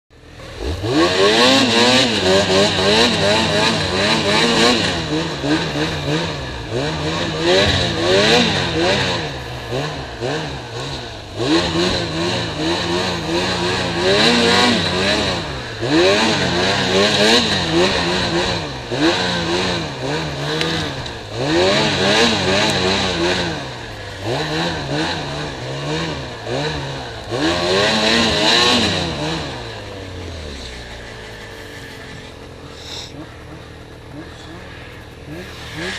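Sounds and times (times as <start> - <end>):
snowmobile engine revving: 0.2 - 35.9.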